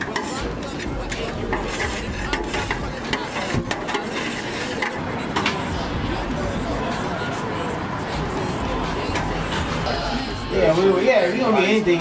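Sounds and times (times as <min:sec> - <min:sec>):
metal spatula scraping pan: 0:00.0 - 0:05.9.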